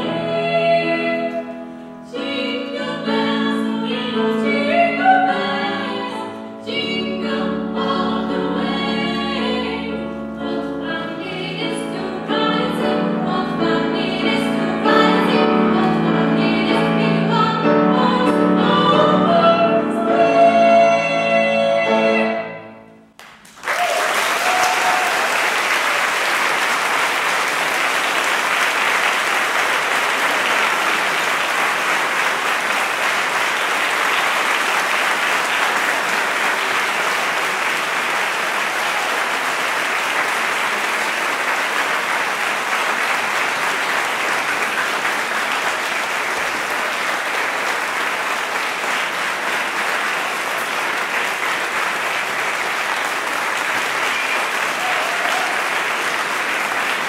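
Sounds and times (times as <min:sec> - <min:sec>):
audience applauding: 0:23.2 - 0:57.0.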